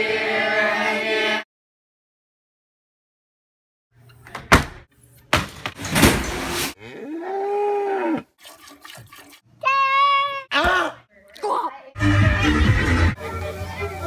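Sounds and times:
dishwasher clattering and banging: 5.4 - 6.7
cow mooing: 6.8 - 8.3.

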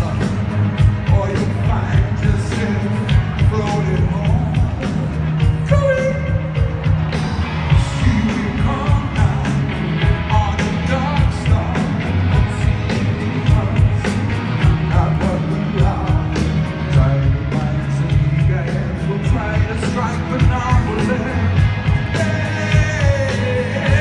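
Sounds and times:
distant live rock band: 0.0 - 24.0
drumbeat: 0.0 - 24.0
person singing: 7.7 - 24.0.

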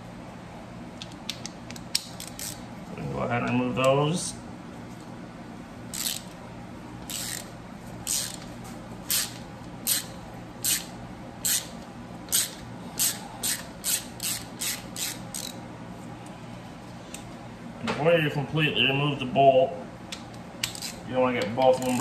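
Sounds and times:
hand ratchet clicking: 1.0 - 2.6, 5.9 - 6.3, 7.1 - 8.5, 9.1 - 11.7, 12.3 - 15.6, 20.6 - 21.0, 21.7 - 22.0.

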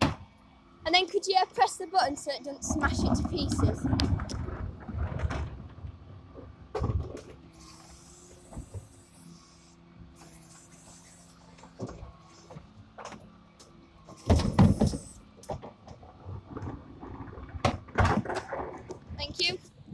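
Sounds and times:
hydraulic motor hum: 1.6 - 19.9
loud clatter of knocks: 3.8 - 5.9, 6.7 - 7.4, 14.2 - 19.2
hydraulic hiss: 7.5 - 12.6, 14.1 - 15.3.

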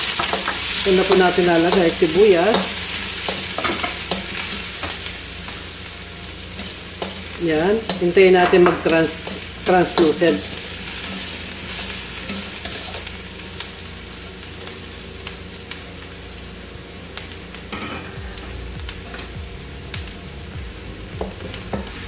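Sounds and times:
onion sizzling in hot oil: 0.0 - 22.0
spatula clicking and scraping: 0.1 - 5.1, 6.6 - 13.1.

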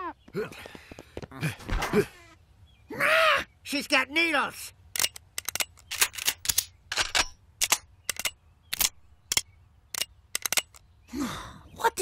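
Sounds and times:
handguns cocking metallic clicks: 4.9 - 10.9.

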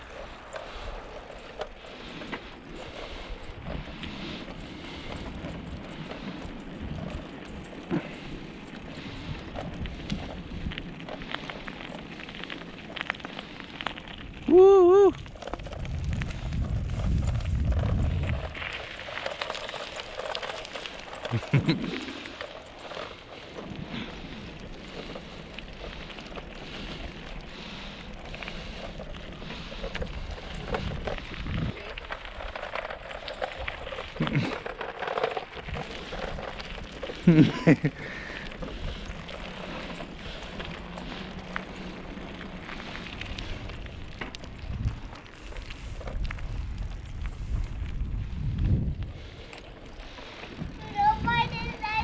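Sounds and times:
bicycle rolling over pavement: 0.0 - 52.0
wind on microphone: 14.5 - 18.9, 30.0 - 32.2, 42.8 - 52.0.

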